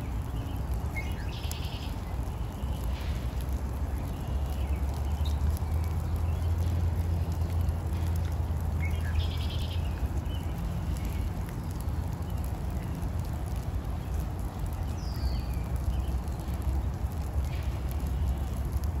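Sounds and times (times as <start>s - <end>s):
rain hiss: 0.0s - 19.0s
bird calls: 0.2s - 6.7s, 8.8s - 13.0s.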